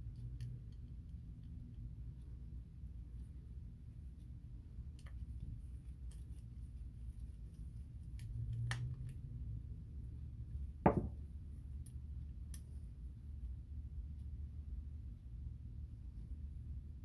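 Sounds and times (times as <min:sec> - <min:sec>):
low steady hum: 0:00.0 - 0:17.0
louder knock: 0:10.9 - 0:11.2.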